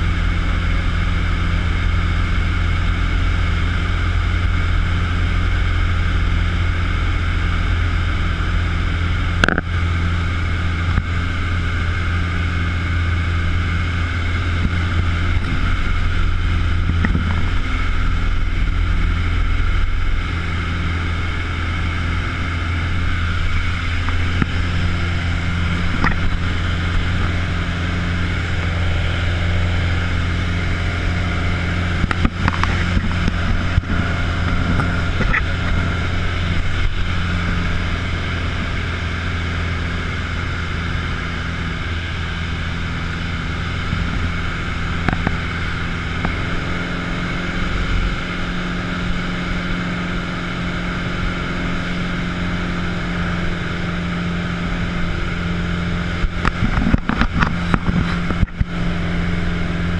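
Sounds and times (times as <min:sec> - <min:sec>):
propeller plane engine droning: 0:00.0 - 0:59.9
rush of airflow: 0:09.2 - 0:46.7.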